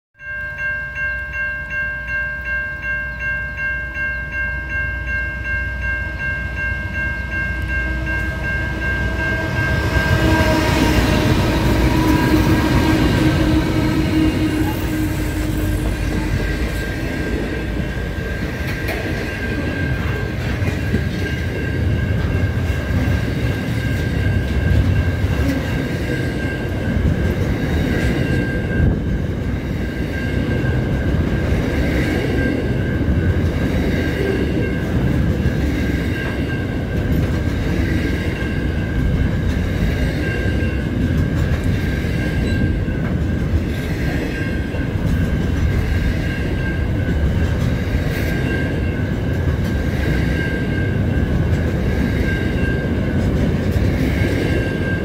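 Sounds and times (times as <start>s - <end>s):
high-pitched ringing tone: 0.2s - 34.9s
steel wheels rumbling on rail: 4.6s - 55.0s.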